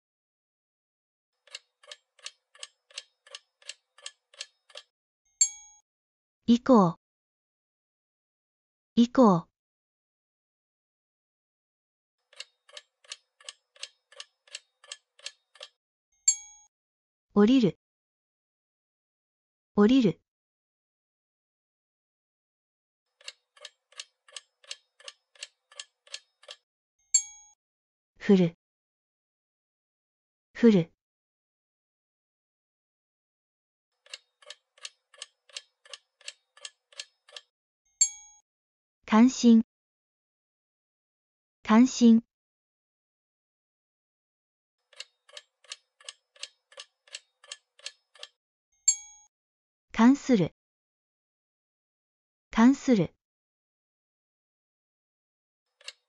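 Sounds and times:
clock-like timer ticks: 1.4s - 5.8s, 12.3s - 16.7s, 23.2s - 26.6s, 34.0s - 38.4s, 44.9s - 49.3s, 55.8s - 56.0s
bright ding: 48.9s - 49.3s.

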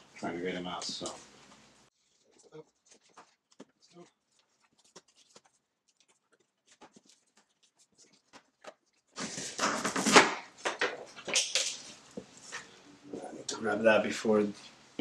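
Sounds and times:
cardboard tearing: 4.5s - 10.6s.

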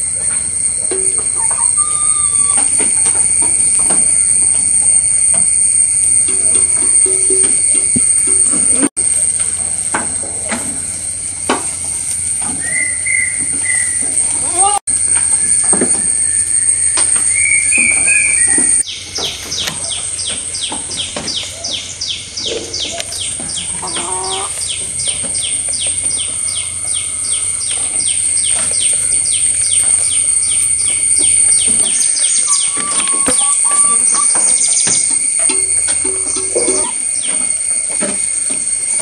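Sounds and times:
high-pitched chirping: 0.0s - 8.8s, 12.1s - 39.0s
constant high whine: 0.0s - 39.0s.

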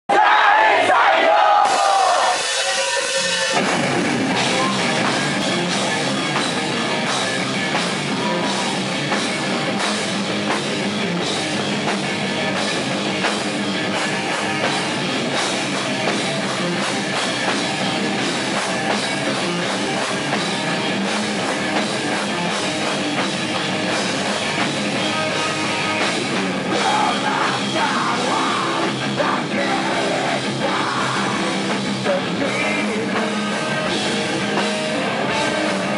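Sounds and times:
heavy metal band playing: 0.1s - 35.9s.

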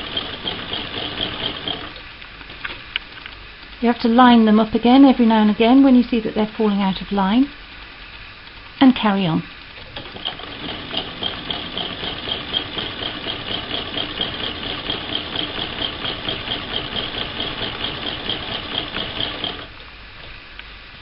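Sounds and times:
sewing machine clatter: 0.0s - 2.8s, 9.7s - 19.8s.

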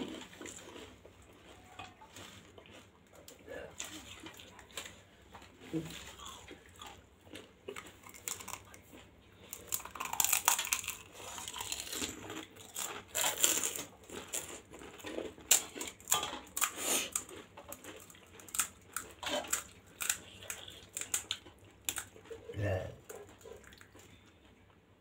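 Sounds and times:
wet chewing: 0.0s - 24.8s
crisp shells crunching: 9.5s - 22.0s.

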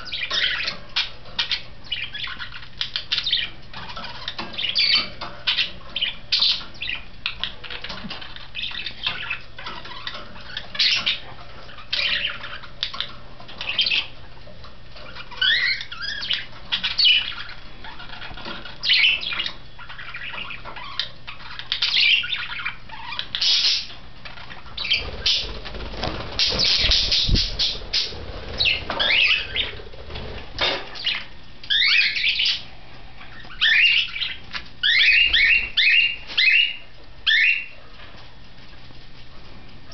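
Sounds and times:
budgerigars chirping and squawking: 0.0s - 38.1s.

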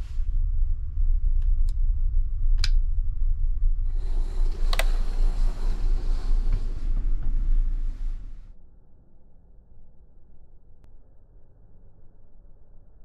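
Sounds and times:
ferry engines droning: 3.8s - 8.5s.

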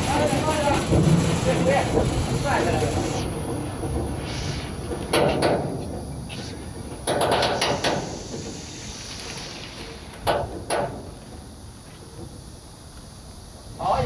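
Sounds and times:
sharp knocks and clanks: 0.0s - 8.6s, 10.1s - 11.2s.

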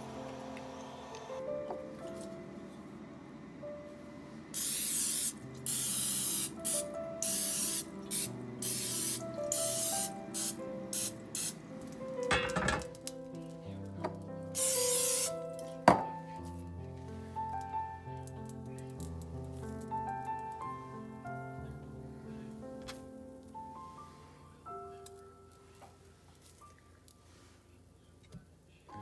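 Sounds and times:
aerosol spray hissing: 4.5s - 11.6s, 14.6s - 15.5s.

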